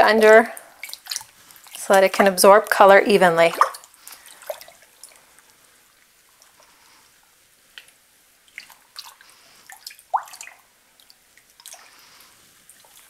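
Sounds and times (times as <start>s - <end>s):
water dripping and sloshing: 0.0s - 13.0s
water plop: 3.5s - 4.8s, 8.5s - 11.8s.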